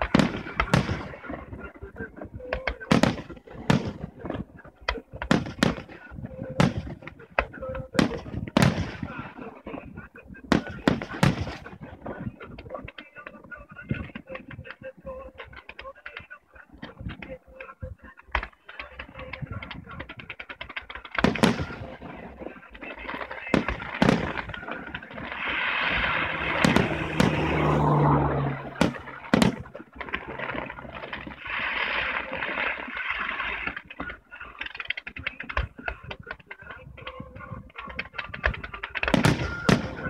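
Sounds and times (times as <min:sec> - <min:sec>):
fireworks crackling pops: 0:00.0 - 0:40.0
loud firework shell bursts: 0:08.0 - 0:09.2, 0:10.5 - 0:11.9, 0:19.6 - 0:22.3, 0:23.0 - 0:35.7, 0:37.9 - 0:40.0
fireworks steady hiss: 0:20.4 - 0:27.7, 0:28.8 - 0:36.4.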